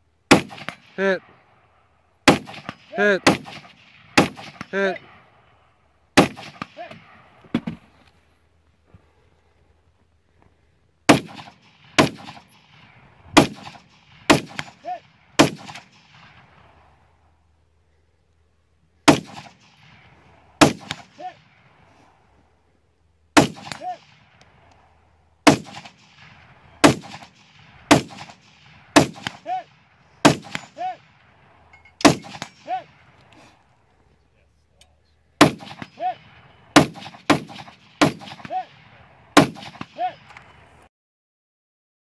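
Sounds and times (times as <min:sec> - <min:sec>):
rifle shots: 0:00.3 - 0:01.2, 0:02.2 - 0:05.4, 0:06.1 - 0:07.8, 0:11.1 - 0:17.2, 0:19.0 - 0:21.8, 0:23.4 - 0:24.7, 0:25.4 - 0:33.2, 0:35.4 - 0:40.3
distant steel target ringing: 0:31.7 - 0:33.0.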